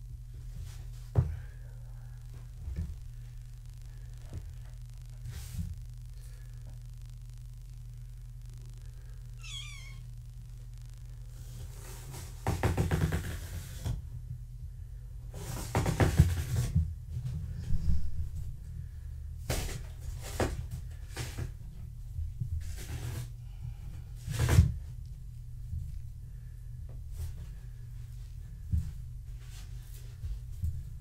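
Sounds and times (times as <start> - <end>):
low steady hum: 0.0 - 31.0.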